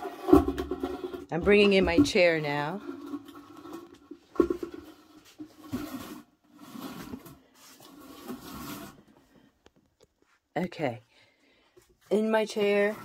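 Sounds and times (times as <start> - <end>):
chair scraping: 0.0 - 9.2.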